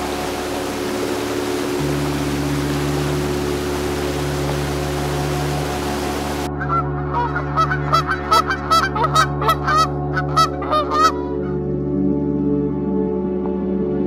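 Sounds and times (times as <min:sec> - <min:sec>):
running water rushing: 0:00.0 - 0:11.2
geese honking: 0:00.0 - 0:11.6.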